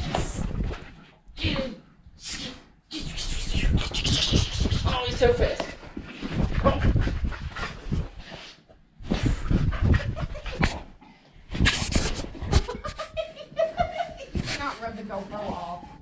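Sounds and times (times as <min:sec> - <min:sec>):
dog panting: 0:06.4 - 0:08.6, 0:09.2 - 0:11.0.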